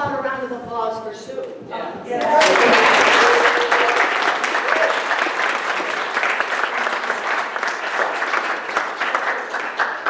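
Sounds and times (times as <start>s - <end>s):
crowd applauding: 2.2s - 10.0s.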